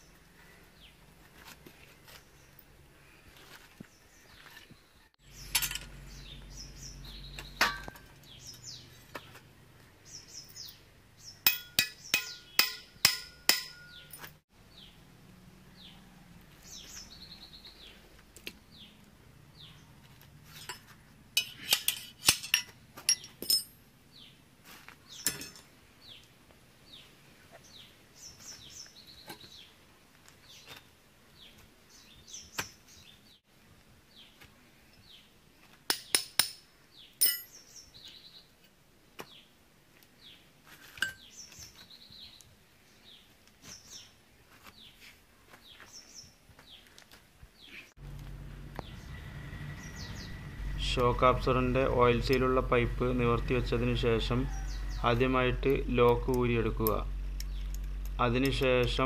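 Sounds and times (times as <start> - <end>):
bird chirps: 4.0 - 9.4, 13.8 - 15.0, 48.8 - 50.9
metal tools clinking: 5.4 - 6.0, 20.6 - 23.8, 25.2 - 25.7, 37.2 - 37.6.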